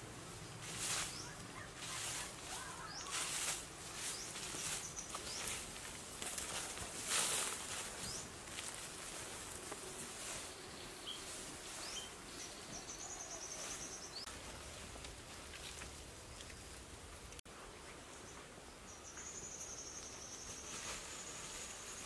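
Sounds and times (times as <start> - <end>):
soil scraping and rustling: 0.0 - 17.4, 20.5 - 22.0
wildlife chirps and trill: 0.8 - 5.6.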